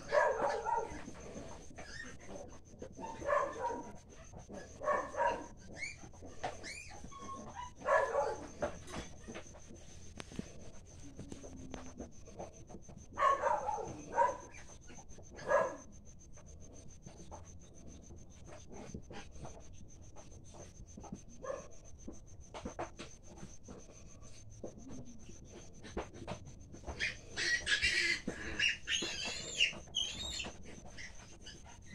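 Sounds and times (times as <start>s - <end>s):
pigs squealing: 0.0s - 9.1s, 26.8s - 31.9s.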